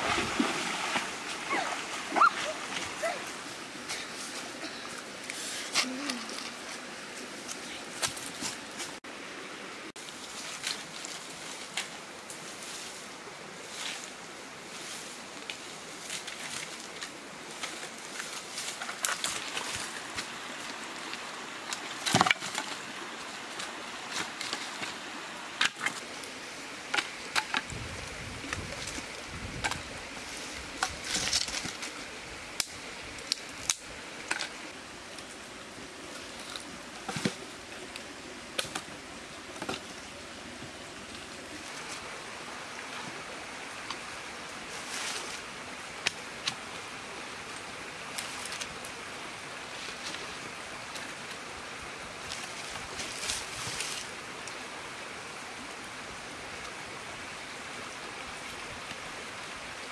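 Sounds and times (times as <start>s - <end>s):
dry sticks knocking and snapping: 22.0s - 22.8s
fire crackling: 32.5s - 34.5s.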